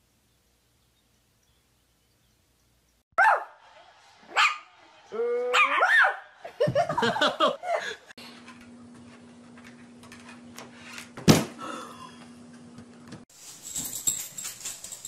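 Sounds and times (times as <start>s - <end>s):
person laughing: 6.4s - 8.1s.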